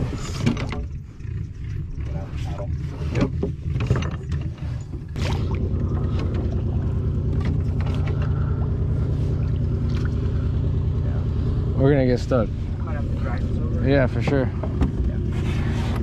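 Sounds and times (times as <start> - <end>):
small boat motor running: 0.0 - 16.0
knocks and clatter: 2.5 - 5.2.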